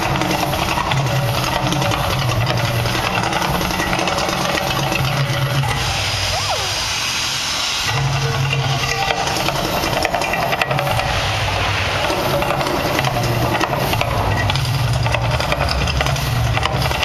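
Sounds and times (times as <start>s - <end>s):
gas flame jets roaring: 0.0s - 17.0s
fireball hissing rush: 4.6s - 15.0s.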